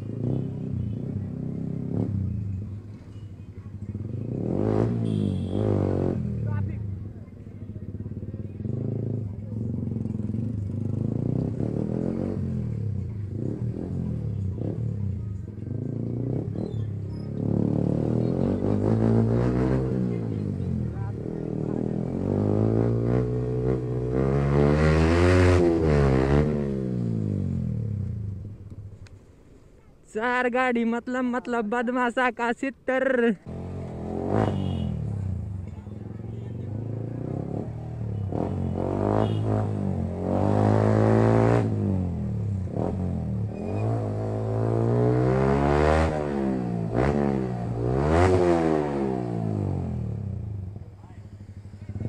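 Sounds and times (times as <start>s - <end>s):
motorcycle engine revving: 0.0s - 29.2s, 33.0s - 52.0s.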